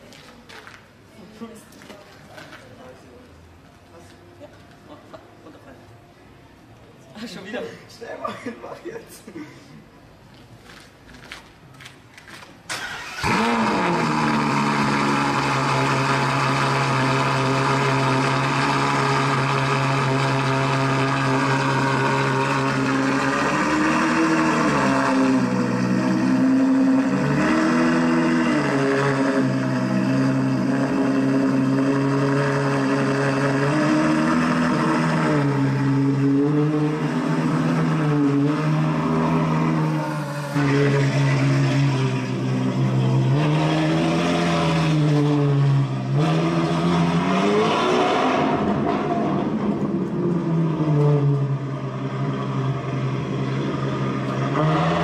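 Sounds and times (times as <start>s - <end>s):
car engine starting and revving: 12.7s - 55.0s.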